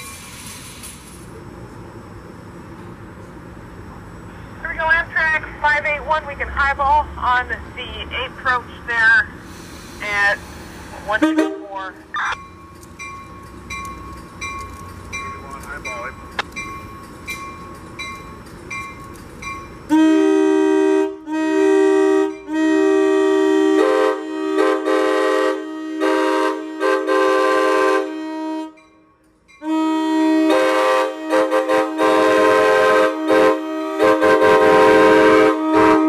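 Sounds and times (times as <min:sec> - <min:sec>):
train horn blasts: 0:11.1 - 0:11.9, 0:19.9 - 0:28.8, 0:29.6 - 0:36.0.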